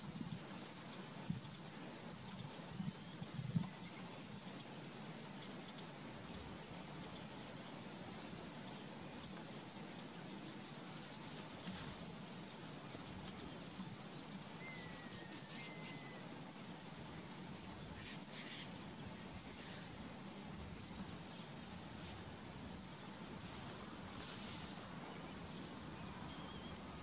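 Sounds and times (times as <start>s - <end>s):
small birds chirping: 0.0s - 27.0s.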